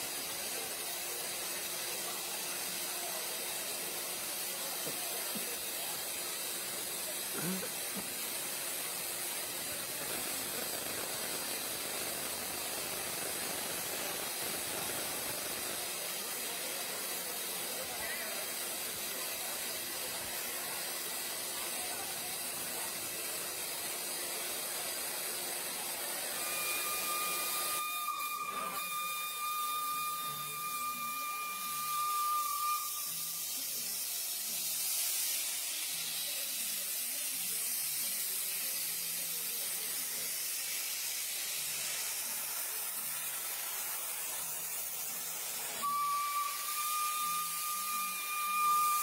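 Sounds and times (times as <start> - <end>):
high-pitched steam whistle: 0.0 - 49.0
steam hissing: 0.0 - 49.0
crowd voices: 0.4 - 27.6.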